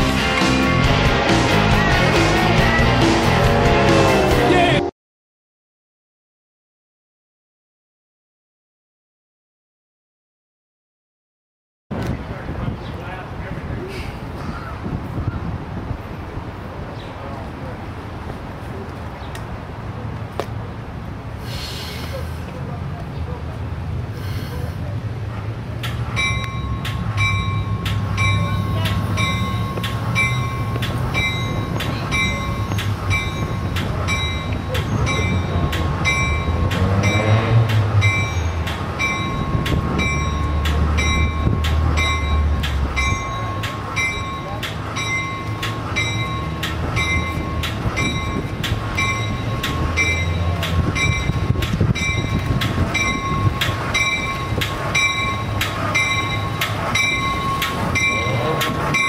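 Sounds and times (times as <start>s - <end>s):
train rumbling: 0.0s - 4.9s, 11.9s - 59.0s
train bell ringing: 26.0s - 59.0s.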